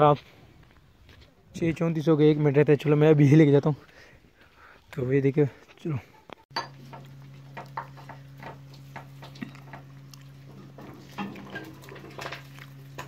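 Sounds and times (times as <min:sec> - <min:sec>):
low steady hum: 0:06.5 - 0:13.0
fingers picking through food: 0:08.8 - 0:13.0.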